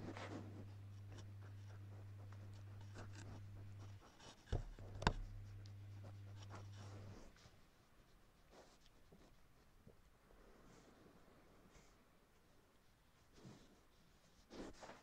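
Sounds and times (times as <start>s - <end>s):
wool rubbing against webcam: 0.0s - 7.6s
steady low hum: 0.0s - 13.8s
sharp knocks on camera: 4.5s - 5.4s.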